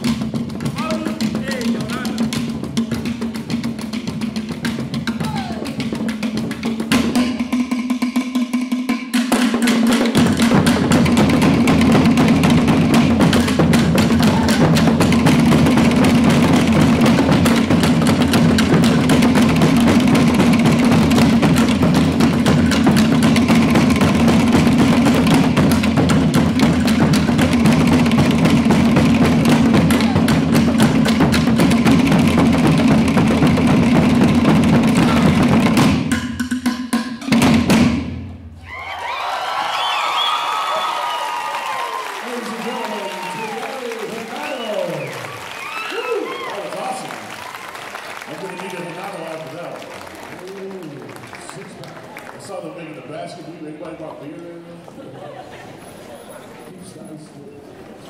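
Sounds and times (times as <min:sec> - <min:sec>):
deep drums: 0:00.0 - 0:38.7.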